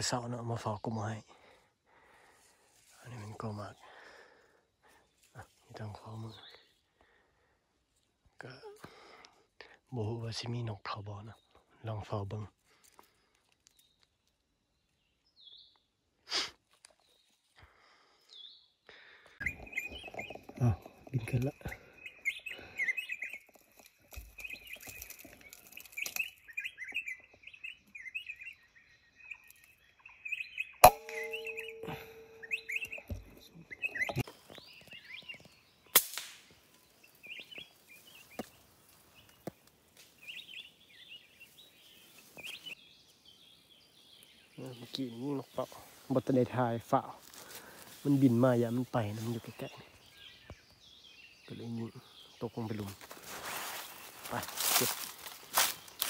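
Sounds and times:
faint forest ambience: 0:00.0 - 0:56.0
small birds chirping: 0:00.0 - 0:56.0
bird short high call: 0:30.4 - 0:33.2.

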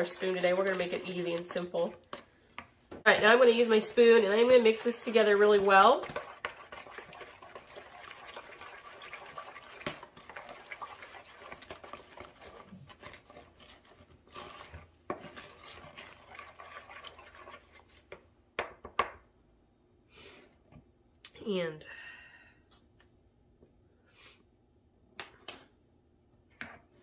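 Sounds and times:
spoon stirring batter: 0:00.0 - 0:19.0.

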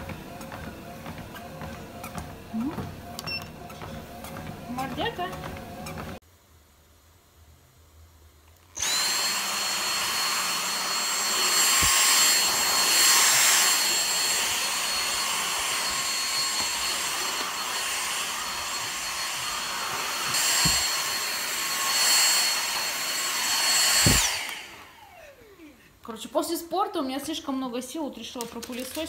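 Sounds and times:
vacuum cleaner motor whine: 0:08.8 - 0:25.8.

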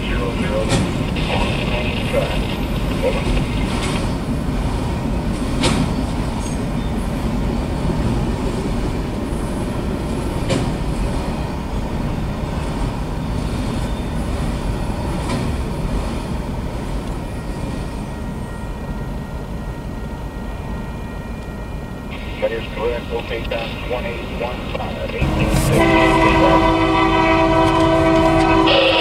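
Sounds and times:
steel train wheels rumbling on rails: 0:00.0 - 0:19.0, 0:22.1 - 0:29.0
sharp clank of freight cars: 0:05.4 - 0:06.6, 0:10.4 - 0:10.9.

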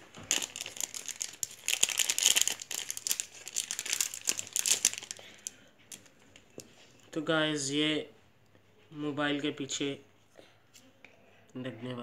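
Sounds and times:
plastic packet crinkling: 0:00.0 - 0:06.7.

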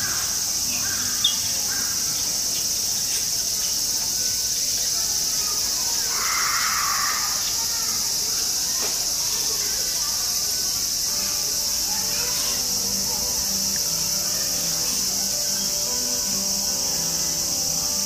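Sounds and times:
high-pitched insect chorus: 0:00.0 - 0:18.0.

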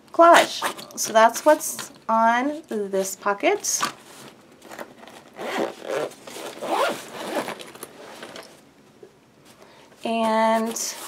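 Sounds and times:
zipper being zipped shut: 0:05.0 - 0:08.5.

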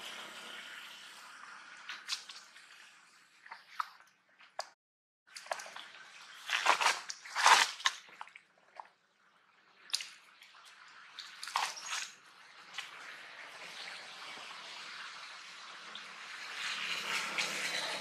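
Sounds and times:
water sloshing in plastic bottle: 0:03.4 - 0:09.0, 0:09.9 - 0:13.0.

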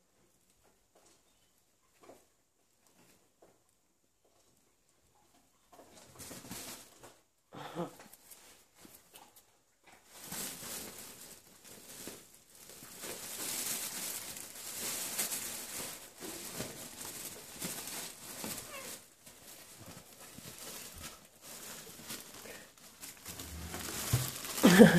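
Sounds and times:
animals scuffling: 0:08.3 - 0:24.9
fabric tunnel rustling and crinkling: 0:10.0 - 0:24.9.

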